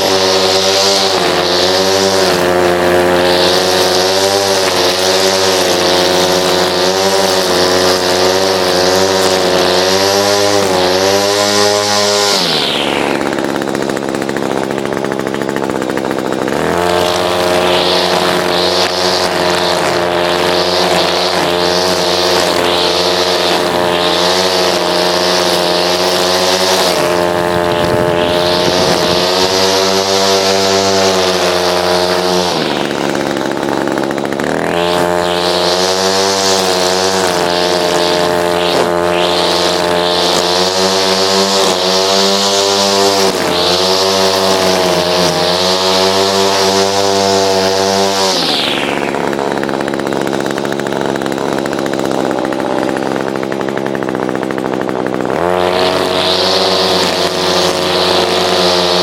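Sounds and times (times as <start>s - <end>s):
string trimmer engine running: 0.0s - 59.0s.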